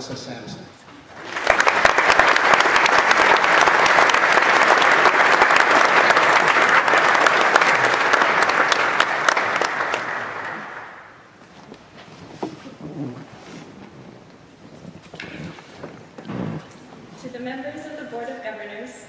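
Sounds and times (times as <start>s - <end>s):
audience applauding: 1.0s - 11.4s.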